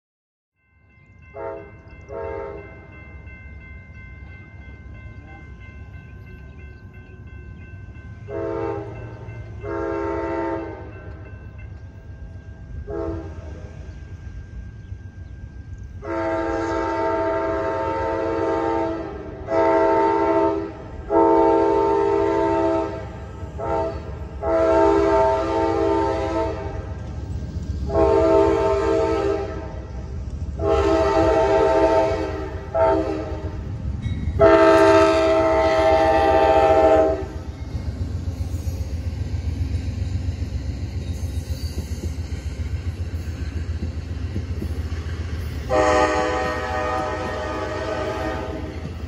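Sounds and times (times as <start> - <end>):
train rumble and clatter: 0.6 - 49.0
train air horn blasts: 1.3 - 2.8, 8.2 - 11.1, 12.8 - 13.7, 16.0 - 27.0, 27.9 - 30.0, 30.6 - 33.7, 34.4 - 37.5, 45.7 - 49.0.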